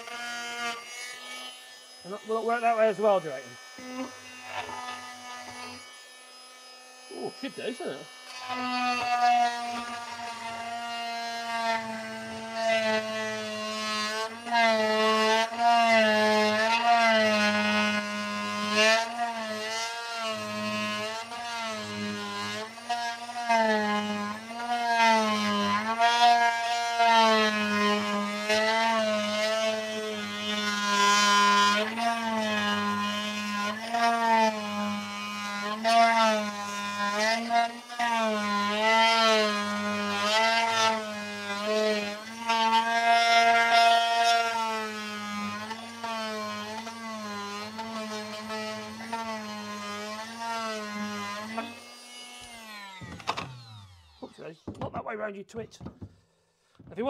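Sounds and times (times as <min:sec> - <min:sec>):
oscillating multi-tool cutting wood: 0:00.0 - 0:56.2.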